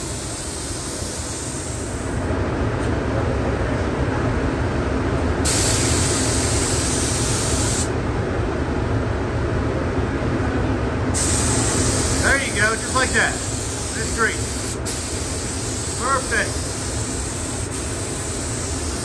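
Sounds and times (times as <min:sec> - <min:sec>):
air spray gun hissing: 0:00.0 - 0:02.2, 0:05.4 - 0:07.9, 0:11.2 - 0:19.0.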